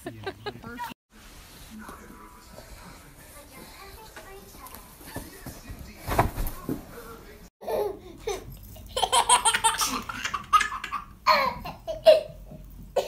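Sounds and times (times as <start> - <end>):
baby laughing: 7.6 - 12.4.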